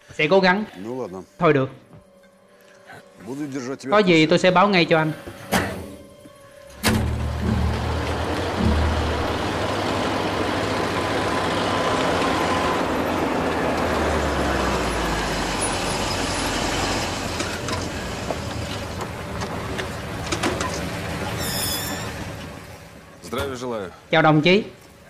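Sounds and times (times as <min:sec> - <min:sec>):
lorry engine running: 0:06.6 - 0:23.2
road noise hiss: 0:06.7 - 0:24.2.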